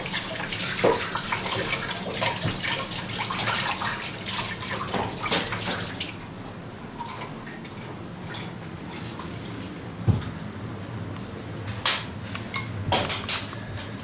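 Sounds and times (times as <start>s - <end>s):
tap water running into a pot: 0.0s - 6.2s.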